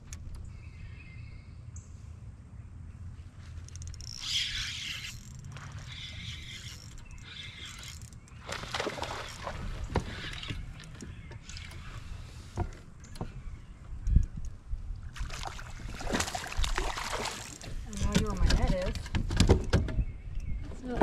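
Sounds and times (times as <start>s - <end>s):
water splashing: 4.6s - 11.0s, 15.1s - 18.0s.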